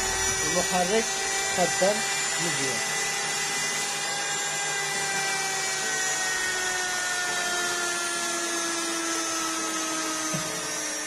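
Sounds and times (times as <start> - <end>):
electric motor whirring: 0.0 - 11.0.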